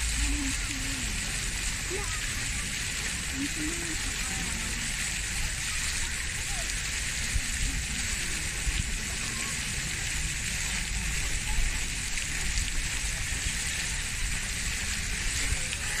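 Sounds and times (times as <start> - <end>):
hissing outdoor ambience: 0.0 - 16.0
low uneven rumble: 0.0 - 16.0.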